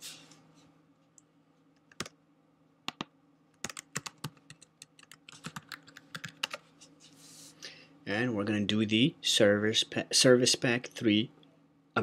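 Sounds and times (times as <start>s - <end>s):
keyboard typing: 1.9s - 2.2s, 2.9s - 6.6s.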